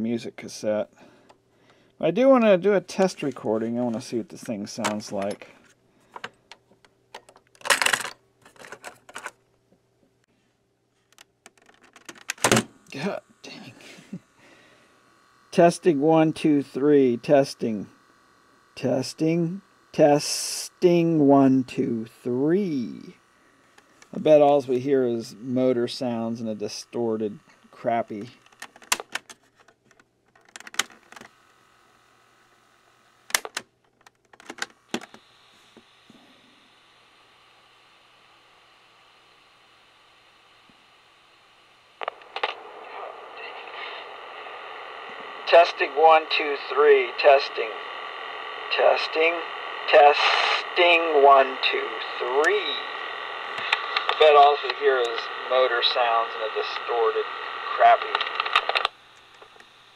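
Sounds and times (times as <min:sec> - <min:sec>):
tape hiss: 0:00.0 - 0:33.8, 0:34.4 - 0:59.9
tape motor running: 0:12.4 - 0:29.2, 0:30.8 - 0:33.6, 0:44.0 - 0:58.0.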